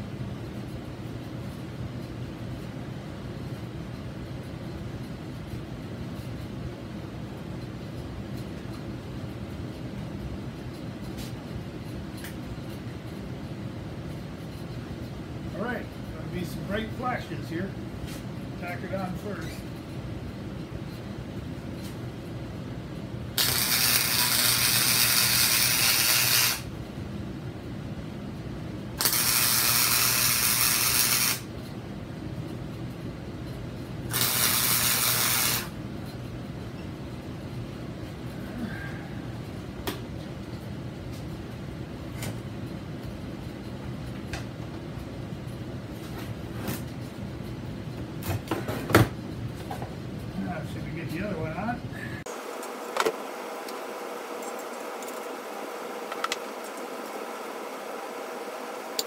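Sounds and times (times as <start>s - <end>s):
steady low hum: 0.0s - 59.0s
welding arc crackling and sizzling: 23.3s - 26.7s, 28.9s - 31.6s, 34.0s - 35.8s, 52.3s - 59.0s.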